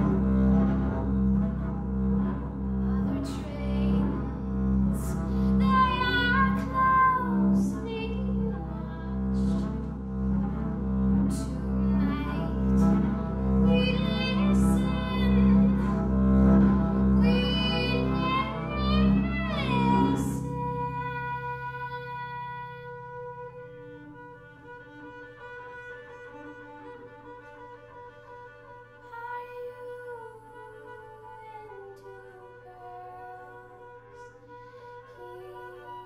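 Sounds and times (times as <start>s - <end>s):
bowed double bass: 0.0s - 36.0s
woman singing: 2.8s - 9.7s, 11.3s - 13.0s, 13.6s - 16.0s, 17.2s - 23.5s, 29.0s - 36.0s.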